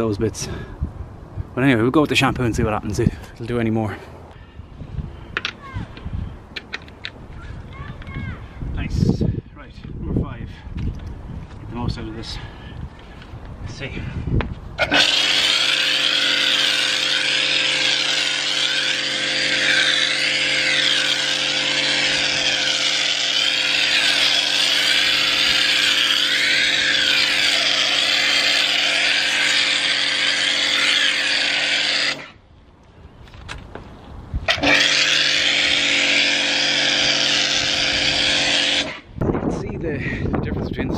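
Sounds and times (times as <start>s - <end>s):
pressure washer running: 14.8s - 32.2s, 34.5s - 39.0s.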